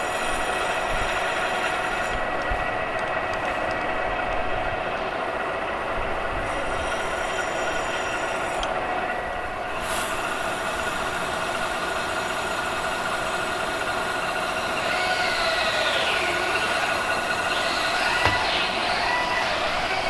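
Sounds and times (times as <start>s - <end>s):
metal lathe cutting drone: 0.0s - 2.4s, 6.6s - 20.0s
whining tones: 14.0s - 20.0s
wavering squeal: 14.4s - 20.0s.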